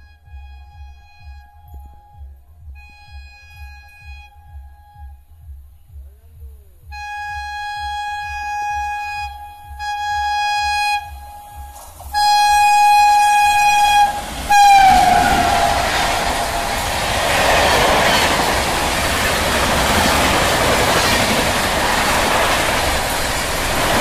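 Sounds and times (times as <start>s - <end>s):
train horn blasts: 0.0s - 5.6s, 6.8s - 24.0s
rushing of passing train: 11.6s - 24.0s.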